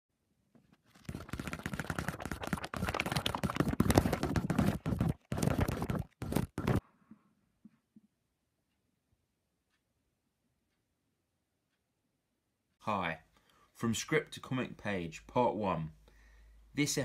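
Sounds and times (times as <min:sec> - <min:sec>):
paper pages rustling: 0:00.6 - 0:06.8.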